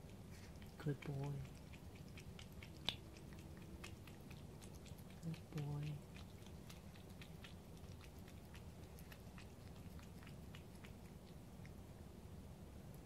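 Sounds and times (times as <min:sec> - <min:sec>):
cat chewing food: 0:00.0 - 0:12.2.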